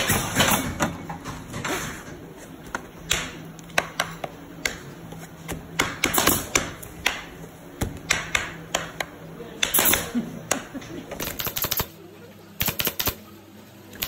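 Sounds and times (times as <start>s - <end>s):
low workshop hum: 0.0s - 14.0s.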